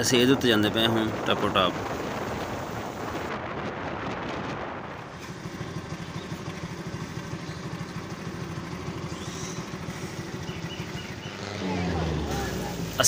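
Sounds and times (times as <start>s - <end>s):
wind rushing over microphone: 0.0s - 5.7s
motorcycle engine idling: 5.0s - 13.0s.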